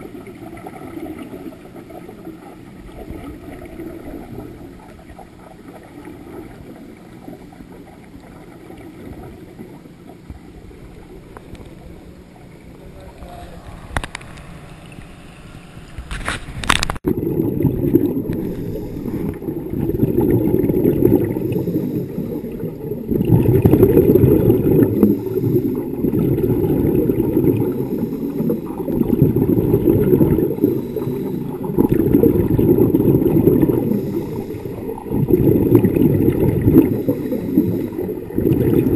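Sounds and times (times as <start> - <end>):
exhaled bubbles rushing: 0.0 - 11.2, 16.6 - 38.9
scuba regulator breathing underwater: 17.2 - 38.9.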